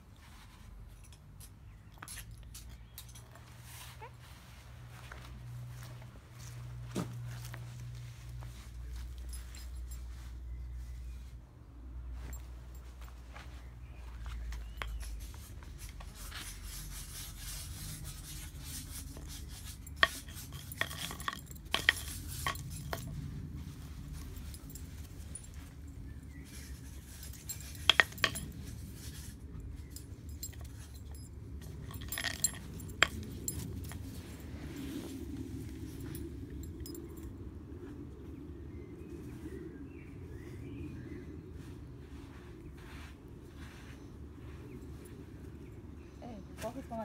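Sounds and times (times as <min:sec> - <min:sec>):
brush scraping on brick paving: 0:14.2 - 0:24.7, 0:26.0 - 0:29.9.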